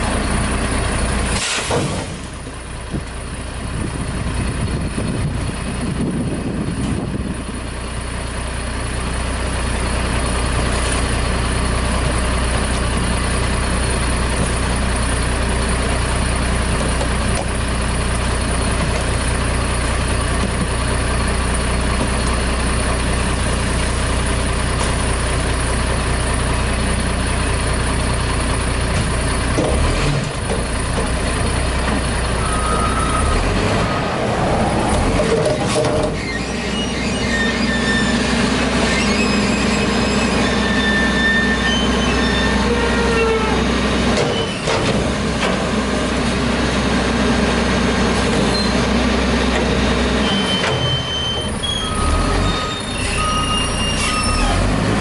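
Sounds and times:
diesel engine idling: 0.0s - 55.0s
trash knocking into container: 1.4s - 2.3s
short squeal: 32.4s - 34.1s, 35.2s - 44.7s, 48.5s - 48.9s, 50.2s - 54.8s.

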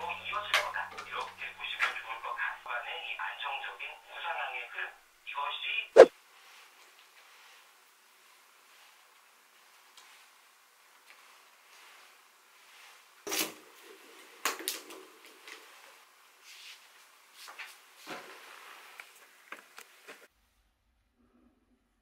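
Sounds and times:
clothing rustling: 6.0s - 14.4s.

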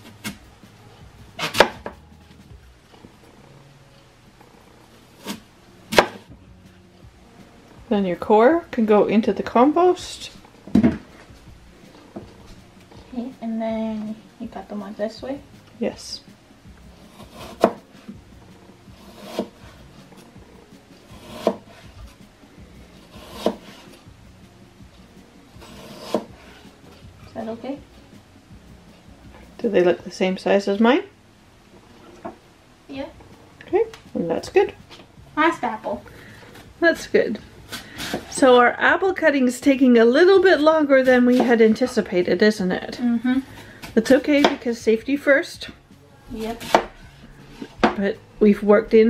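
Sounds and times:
knife slicing apple on cutting board: 1.4s - 2.0s, 5.2s - 6.2s, 17.0s - 18.1s, 19.0s - 19.7s, 21.1s - 22.2s, 23.0s - 24.0s, 25.6s - 26.7s, 37.6s - 38.4s, 41.0s - 41.6s, 43.8s - 44.7s, 46.4s - 47.0s.

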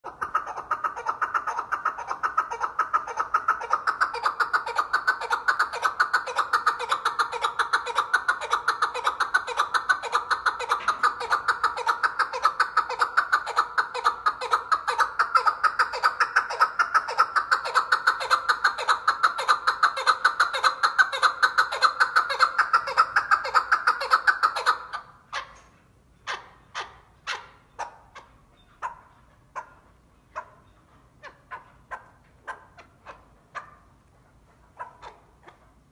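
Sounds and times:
partridge calling: 0.0s - 34.0s.

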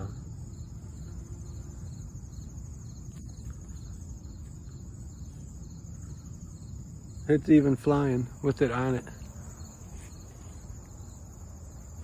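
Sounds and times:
faint insect chirp: 0.0s - 12.0s
insect high trill: 0.0s - 12.0s.

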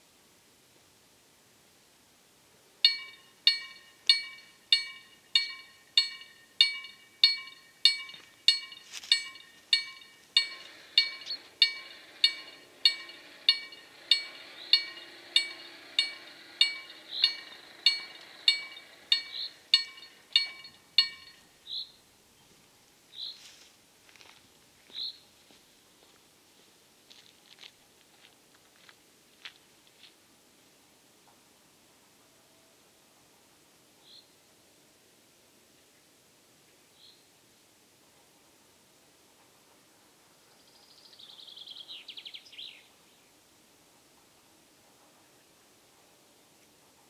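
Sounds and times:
level crossing bell ringing: 2.8s - 21.4s
barrier motor hum: 2.9s - 21.4s.

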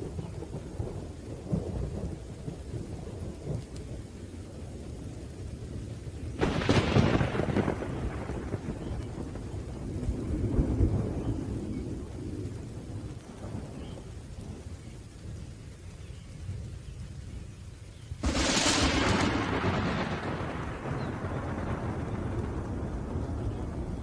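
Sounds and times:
rain falling: 0.0s - 24.0s
thunder rumbling: 0.0s - 24.0s
loud thunderclap: 6.4s - 14.6s, 18.2s - 24.0s.

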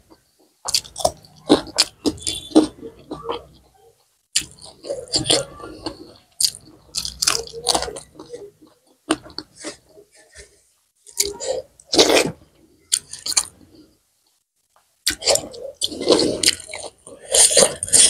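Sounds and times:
wet chewing and lip-smacking: 0.6s - 3.4s, 4.3s - 9.9s, 15.0s - 18.0s.

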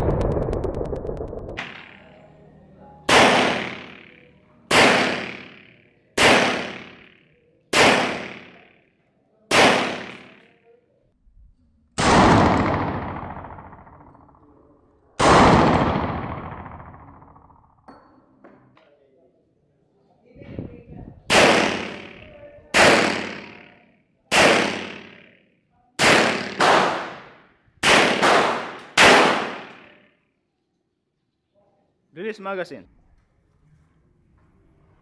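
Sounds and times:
pistol shots ringing: 3.1s - 8.7s, 9.5s - 10.5s, 21.3s - 25.4s, 26.0s - 30.0s
dull bangs with long tails: 15.2s - 17.5s.

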